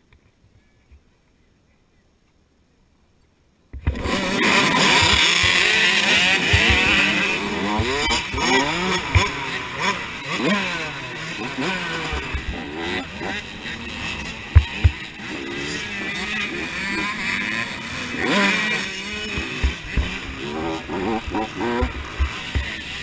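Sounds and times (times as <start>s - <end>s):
low thumps from bumps: 3.8s - 9.7s, 11.6s - 15.2s, 19.2s - 23.0s
dirt bike engines revving: 3.8s - 23.0s.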